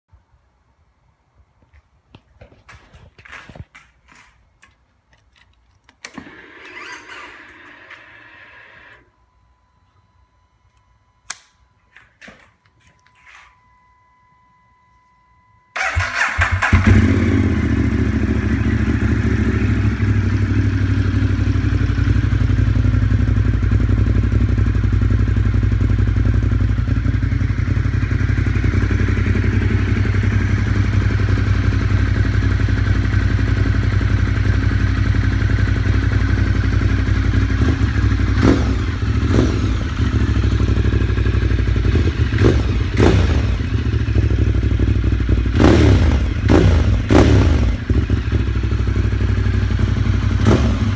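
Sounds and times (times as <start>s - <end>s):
motorcycle engine idling: 15.8s - 50.9s.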